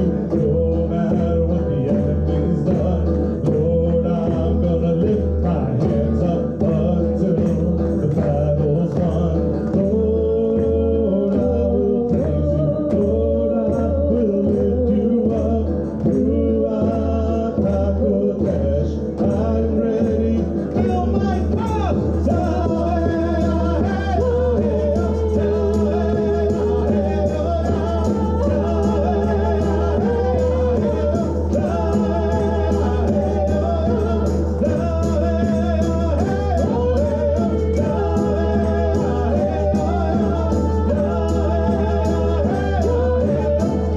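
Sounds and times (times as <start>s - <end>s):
guitar: 0.0s - 43.9s
hand frame drum beat: 0.0s - 43.9s
woman singing: 9.7s - 21.2s, 22.3s - 43.9s.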